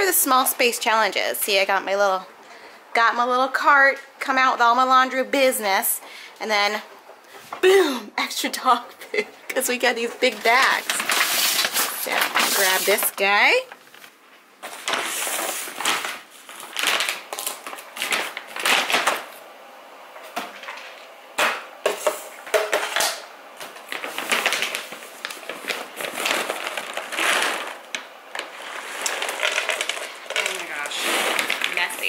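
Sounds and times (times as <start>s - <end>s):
bag of dog food rustling: 10.0s - 19.4s, 23.7s - 32.0s
kibble pouring into plastic canister: 26.0s - 32.0s.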